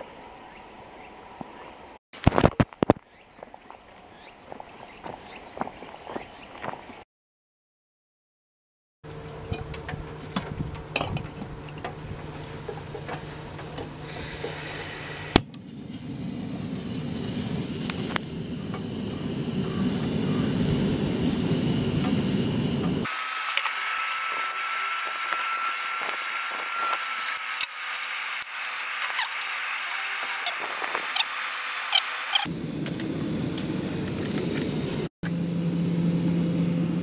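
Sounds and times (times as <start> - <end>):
gas stove burning: 9.4 - 30.1.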